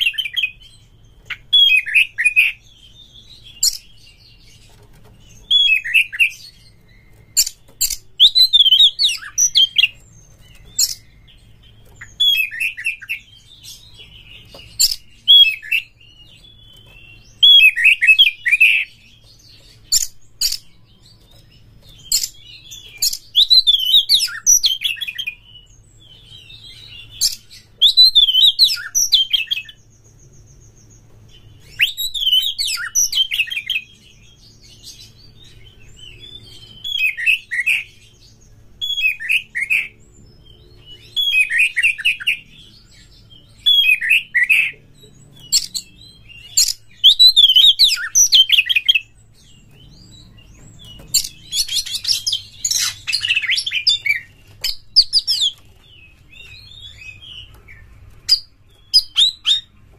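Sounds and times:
bird singing whistled phrases: 5.4 - 10.0, 22.0 - 29.8, 31.6 - 34.4, 45.4 - 49.1, 56.3 - 59.7.

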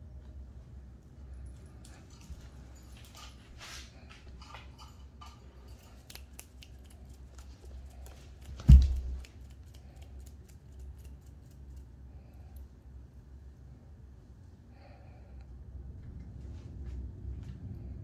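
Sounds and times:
cat claws picking at carpet: 5.8 - 11.9.

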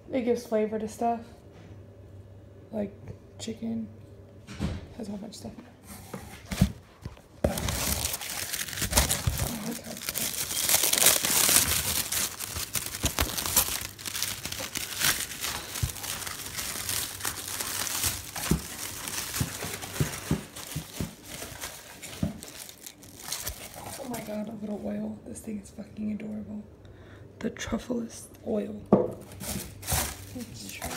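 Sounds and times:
packing paper rustling and crackling: 6.4 - 24.8, 29.2 - 30.9.

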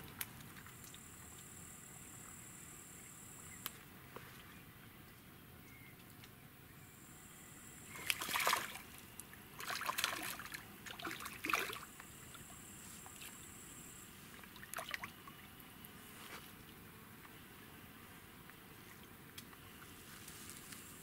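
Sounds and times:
fish splashing in water: 7.9 - 13.3, 14.3 - 15.6.

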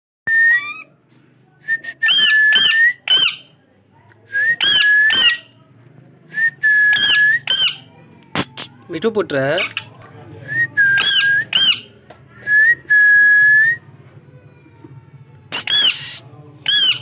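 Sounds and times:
parakeet whistling: 0.4 - 0.9, 2.0 - 3.4, 4.5 - 5.4, 6.8 - 7.8, 10.8 - 11.9, 15.5 - 17.0.

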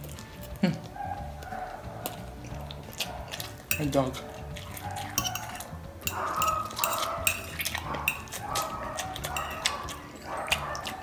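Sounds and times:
fork clinking on glass bowl: 3.3 - 11.0.

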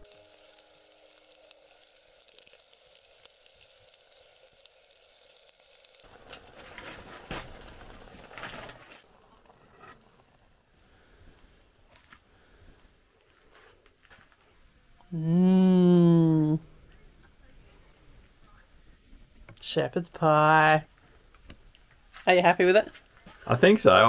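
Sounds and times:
vegetables sizzling in a pot: 0.0 - 11.7.

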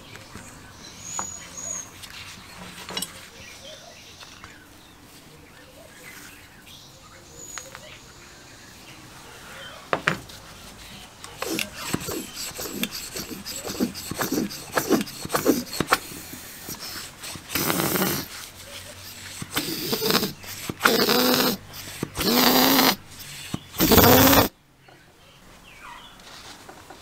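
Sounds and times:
foot pump squealing strokes: 11.3 - 24.5
pump piston scraping: 11.3 - 24.5.

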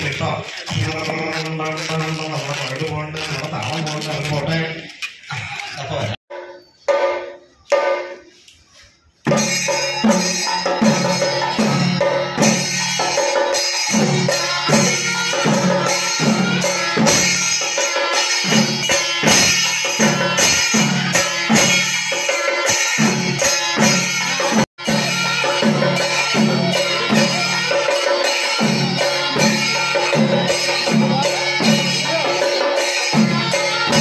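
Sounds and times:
drums beaten with sticks: 6.3 - 8.4, 9.2 - 34.0
cymbals: 6.3 - 34.0.

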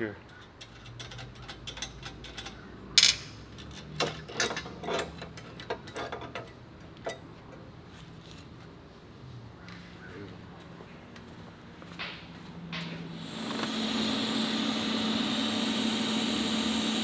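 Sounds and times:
metal tools knocking: 0.3 - 7.7.

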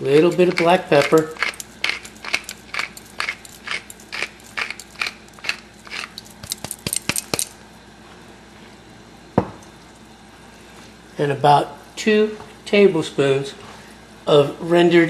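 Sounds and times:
pepper mill grinding: 0.0 - 7.6.

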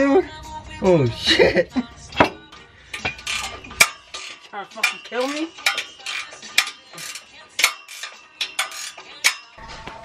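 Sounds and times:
metal tools clinking: 2.2 - 9.9.

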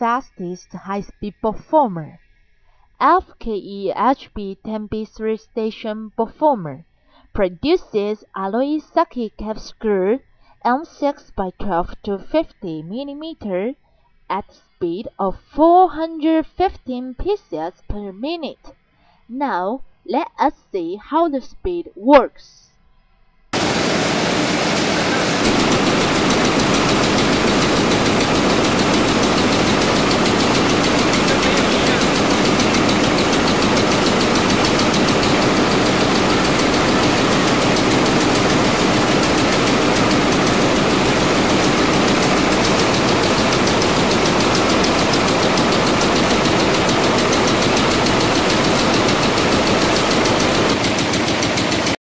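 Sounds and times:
machine rapid mechanical clatter: 23.6 - 52.0.

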